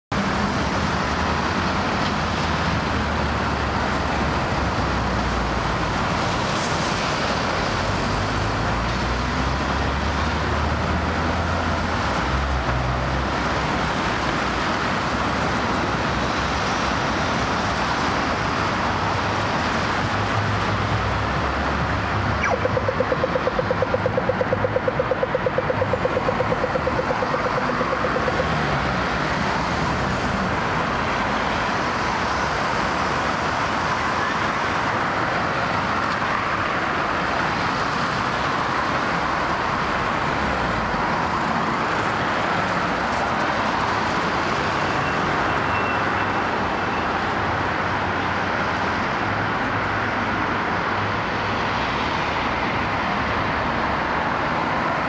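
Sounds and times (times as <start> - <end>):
road traffic noise: 0.1 - 55.0
fast-pulsing tone: 22.4 - 28.7.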